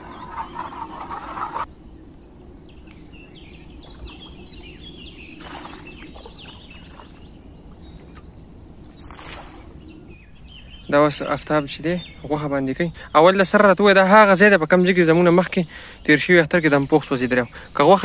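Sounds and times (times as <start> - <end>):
birds chirping: 0.0 - 18.0
water splashing: 3.8 - 9.8.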